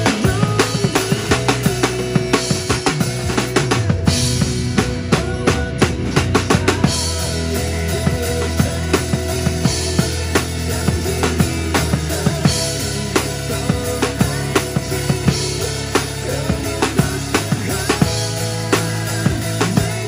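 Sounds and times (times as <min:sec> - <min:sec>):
backing music: 0:00.0 - 0:20.0
drum kit groove: 0:00.0 - 0:20.0.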